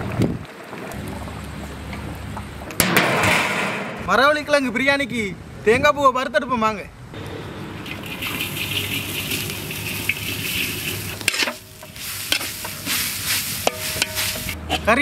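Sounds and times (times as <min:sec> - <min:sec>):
food sizzling in a pan: 0:08.1 - 0:14.6.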